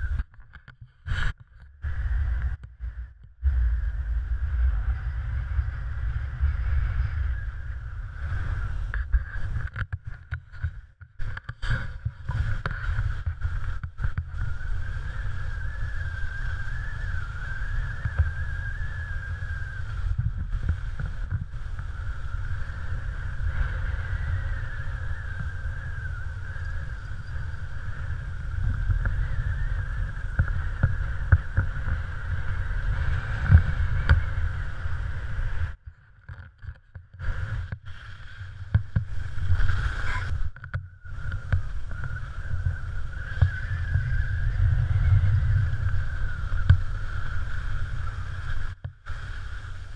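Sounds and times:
wind rumble: 0:00.0 - 0:49.9
skis sliding over snow: 0:04.0 - 0:35.8, 0:37.2 - 0:49.9.

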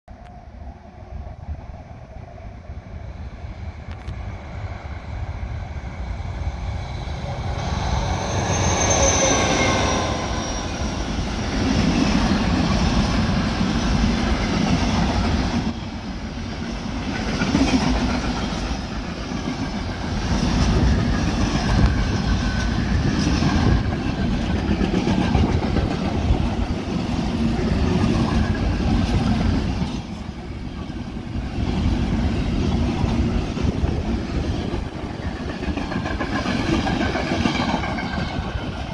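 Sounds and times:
diesel locomotive engine: 0:00.1 - 0:38.9
train wheel clatter: 0:16.5 - 0:38.9.

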